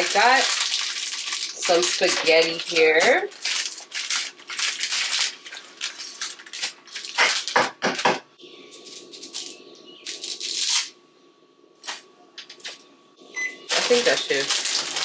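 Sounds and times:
plastic packet crinkling: 0:00.0 - 0:07.8, 0:08.8 - 0:10.9, 0:13.7 - 0:15.0.

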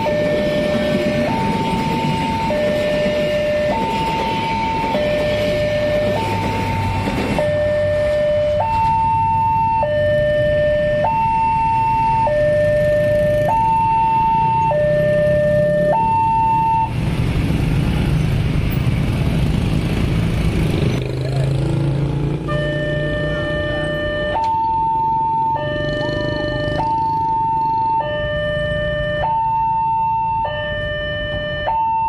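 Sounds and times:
two-tone level crossing alarm: 0:00.0 - 0:17.0, 0:22.4 - 0:32.0.

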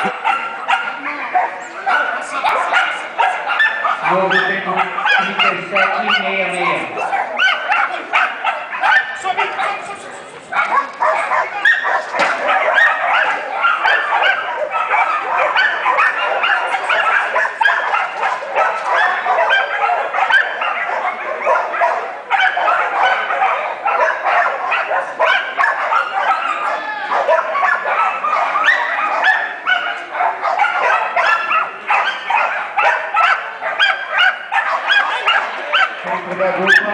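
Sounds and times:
dog barking in quick yips: 0:07.0 - 0:09.9, 0:10.5 - 0:36.0.

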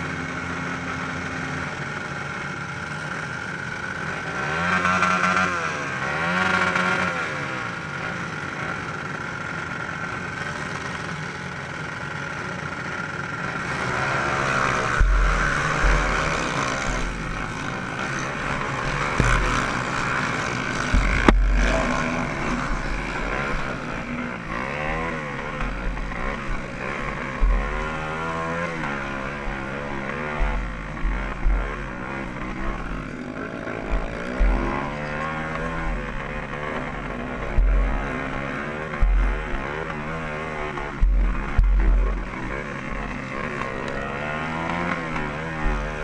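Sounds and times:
dirt bike engines revving: 0:00.0 - 0:46.0
motorbike engine running hard: 0:00.0 - 0:46.0
sharp knocks from bumps: 0:14.8 - 0:24.2, 0:33.8 - 0:40.0, 0:40.7 - 0:46.0.

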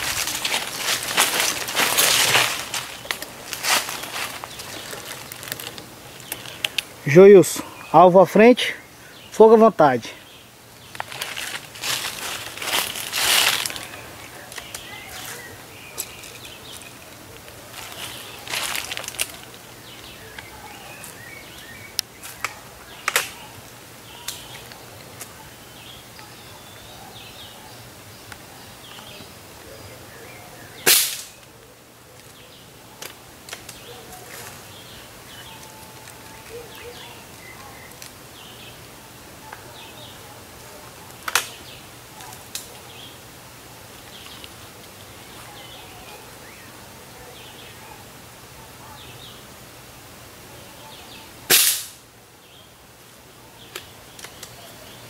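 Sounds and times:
birds chirping: 0:00.0 - 0:55.0
rifle barrel snapping shut: 0:51.5 - 0:52.0.

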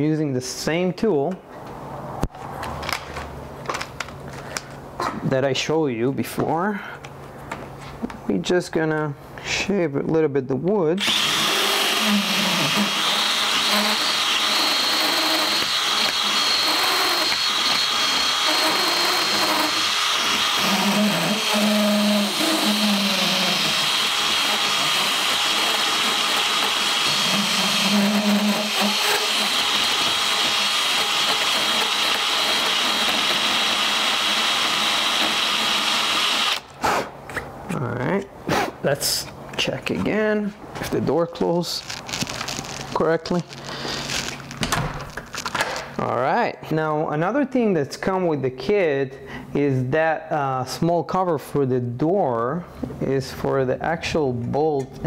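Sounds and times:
drill burr grinding wood: 0:11.0 - 0:36.7
high drill motor whine: 0:11.0 - 0:36.7.

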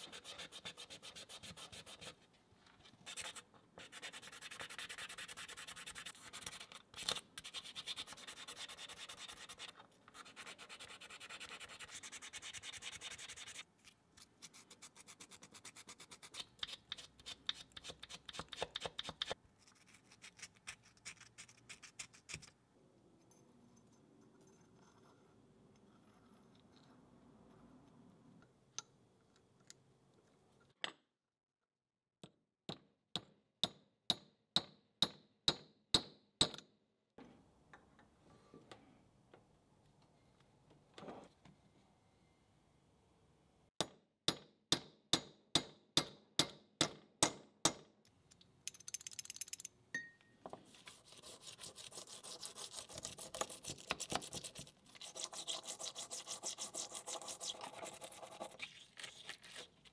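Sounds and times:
wire brush scrubbing: 0:50.7 - 0:59.9.

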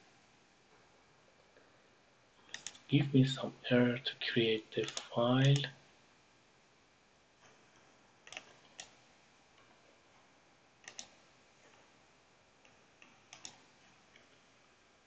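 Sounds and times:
computer mouse clicks: 0:02.4 - 0:02.9, 0:04.8 - 0:05.7, 0:08.2 - 0:09.0, 0:10.8 - 0:11.9, 0:12.6 - 0:14.3.

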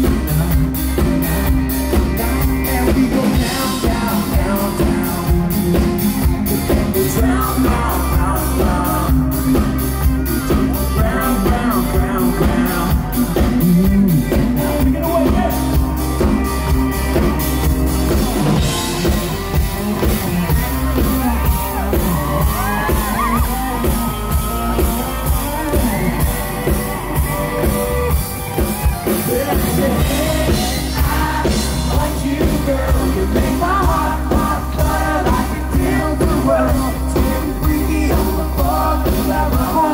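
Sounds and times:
drum kit beat: 0:00.0 - 0:39.9
electric guitar: 0:00.0 - 0:39.9
live country-rock band: 0:00.0 - 0:39.9
person singing and shouting: 0:20.3 - 0:39.9.

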